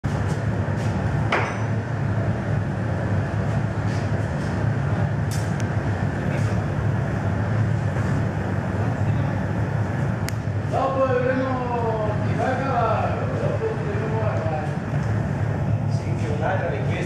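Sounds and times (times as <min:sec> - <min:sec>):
furnace roaring: 0:00.0 - 0:17.0
metallic ring: 0:01.4 - 0:01.8.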